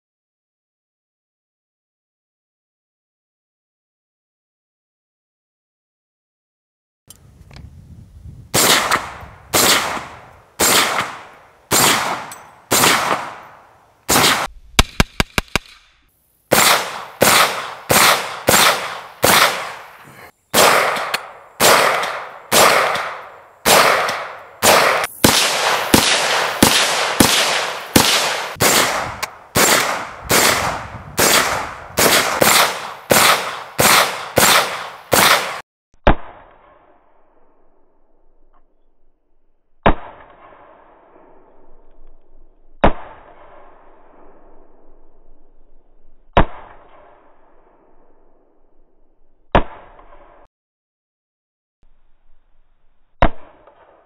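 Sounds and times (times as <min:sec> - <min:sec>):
rifle shots with echo: 0:08.5 - 0:36.9, 0:39.8 - 0:41.5, 0:42.8 - 0:44.5, 0:46.4 - 0:48.0, 0:49.5 - 0:50.5, 0:53.2 - 0:54.0.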